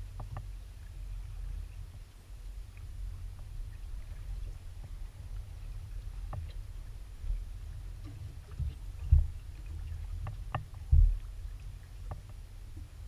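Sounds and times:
heavy thumps on hull: 0:08.1 - 0:09.4, 0:10.2 - 0:11.2.

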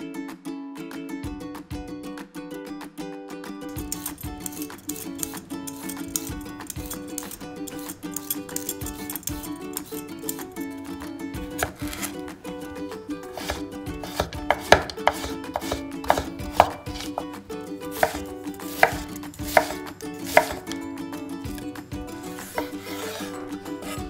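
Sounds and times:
knife chopping on wooden board: 0:11.5 - 0:12.1, 0:13.3 - 0:17.3, 0:17.9 - 0:20.7, 0:22.3 - 0:24.0.

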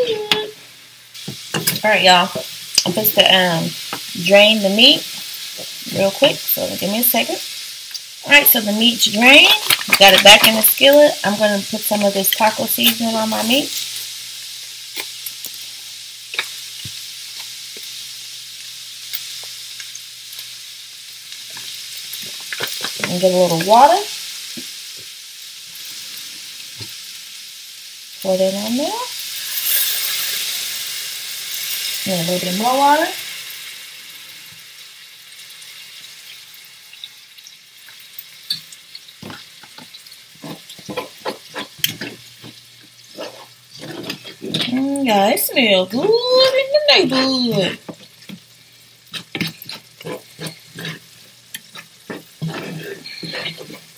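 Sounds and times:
meat sizzling in skillet: 0:00.0 - 0:53.9
spatula scraping a pan: 0:39.2 - 0:44.9, 0:49.1 - 0:53.9.

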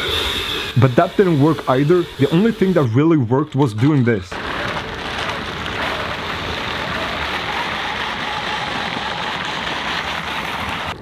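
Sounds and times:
studded wheel scraping on ice: 0:04.3 - 0:11.0.

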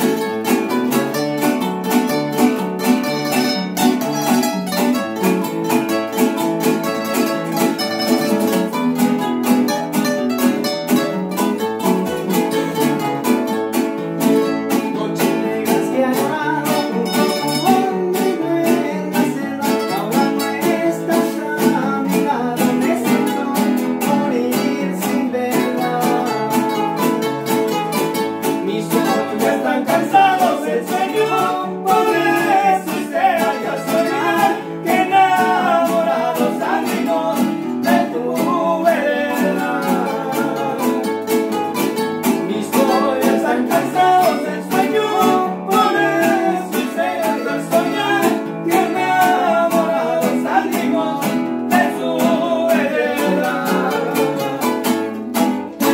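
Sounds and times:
acoustic guitars strumming: 0:00.0 - 0:55.9
man singing: 0:14.4 - 0:27.3, 0:28.4 - 0:41.4, 0:42.2 - 0:55.9.

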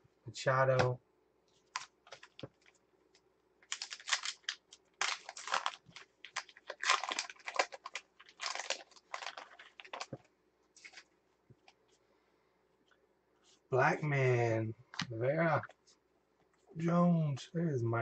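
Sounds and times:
wrapper crinkling: 0:01.6 - 0:02.8, 0:03.6 - 0:11.8.

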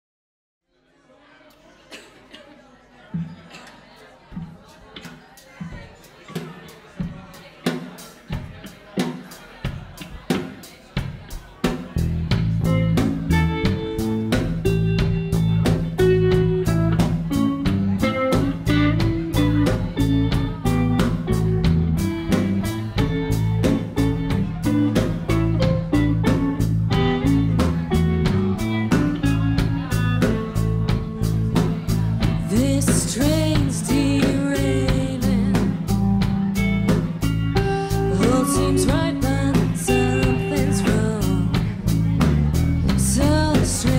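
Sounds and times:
drum kit beat: 0:04.3 - 0:43.9
electric bass and guitar: 0:12.0 - 0:43.9
woman singing: 0:32.4 - 0:36.0, 0:37.7 - 0:41.7, 0:42.9 - 0:43.9.

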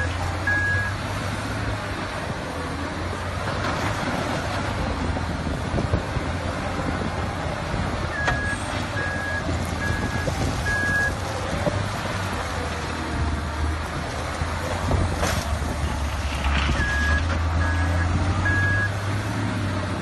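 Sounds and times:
diesel engine running: 0:00.0 - 0:20.0
reversing alarm beeping: 0:16.8 - 0:19.0.

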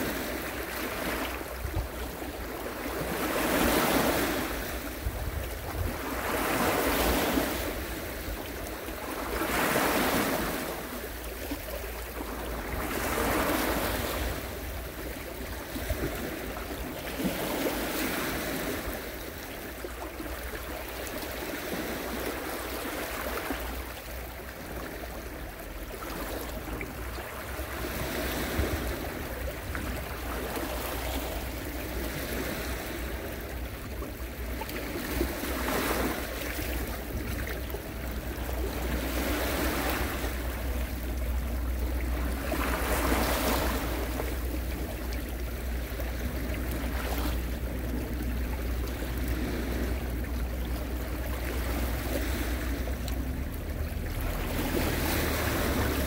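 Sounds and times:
sea waves breaking: 0:00.0 - 0:56.0
steady low rumble: 0:36.7 - 0:56.0.

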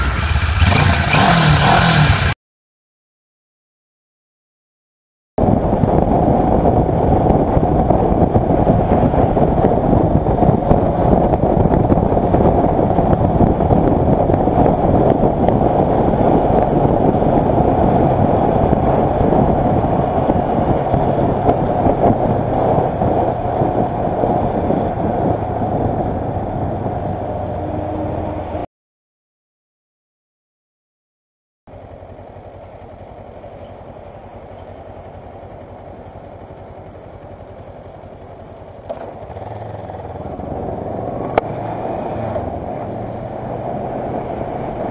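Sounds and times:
motorcycle engine running: 0:00.0 - 0:02.4, 0:05.4 - 0:28.6, 0:31.7 - 0:44.9
wind rush over microphone: 0:05.4 - 0:28.7, 0:39.2 - 0:44.9.

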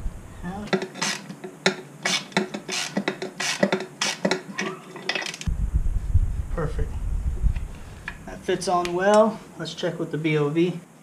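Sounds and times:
metallic clinks and scrapes: 0:00.7 - 0:05.5.

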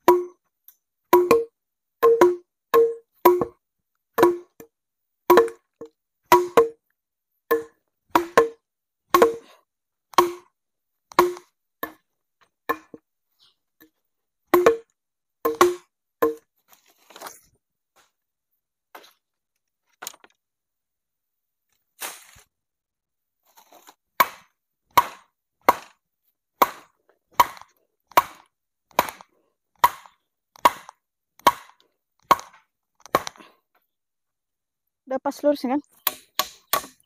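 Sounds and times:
tool striking wood: 0:00.0 - 0:00.4, 0:01.2 - 0:03.6, 0:04.2 - 0:04.7, 0:05.3 - 0:06.8, 0:07.5 - 0:09.5, 0:10.1 - 0:10.5, 0:11.1 - 0:12.0, 0:14.5 - 0:14.9, 0:15.5 - 0:16.4, 0:24.2 - 0:26.0, 0:26.6 - 0:33.4, 0:36.0 - 0:37.0.

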